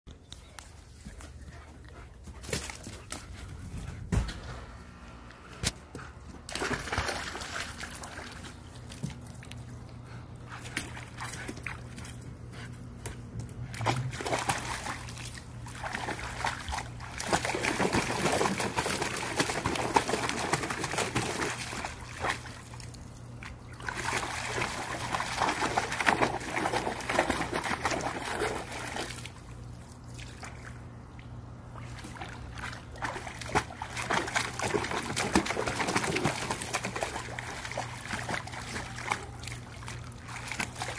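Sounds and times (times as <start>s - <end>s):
dog splashing in water: 6.4s - 9.7s, 13.7s - 30.8s, 31.7s - 40.9s.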